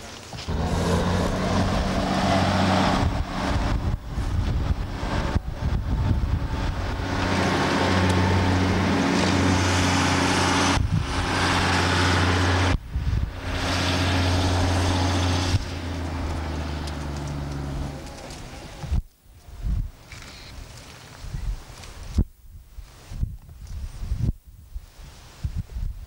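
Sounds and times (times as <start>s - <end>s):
diesel railcar engine droning: 0.0s - 19.5s.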